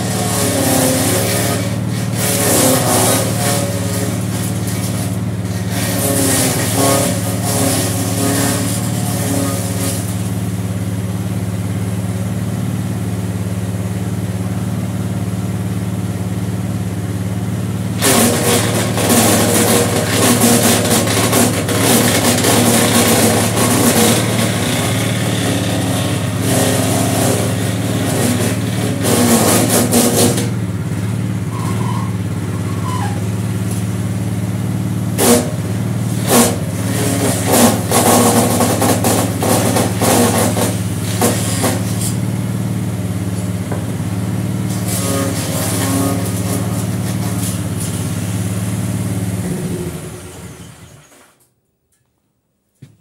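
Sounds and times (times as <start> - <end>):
small engine running: 0.0 - 51.3
chipper grinding branches: 0.0 - 51.5.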